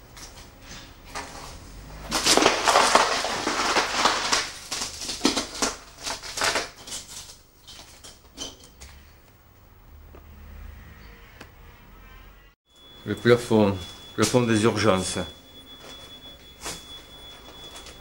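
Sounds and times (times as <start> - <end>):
footsteps crunching over rubble: 0.0 - 9.0.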